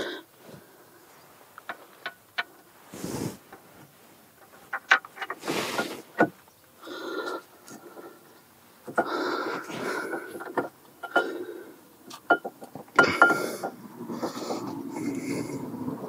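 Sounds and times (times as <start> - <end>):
metal clinks and knocks of brake caliper: 10.1 - 11.4, 12.1 - 13.8.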